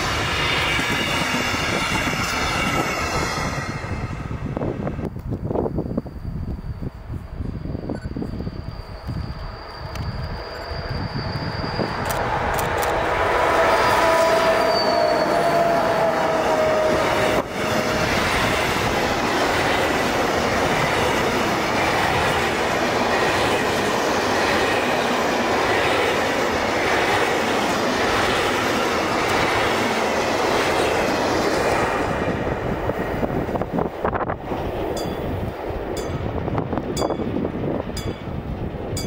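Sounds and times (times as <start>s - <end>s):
locomotive tones: 0.0s - 31.2s
train wheels on rails: 0.0s - 39.0s.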